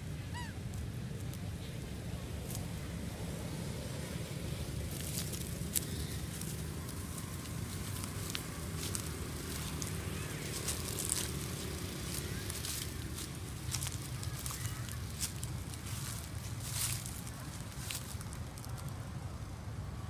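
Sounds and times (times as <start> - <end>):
footsteps crunching dry leaves: 4.4 - 19.0.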